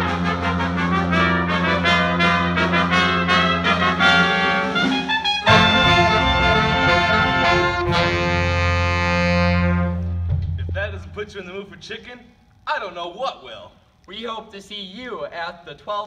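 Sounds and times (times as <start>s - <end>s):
jazz big band playing: 0.0s - 11.3s.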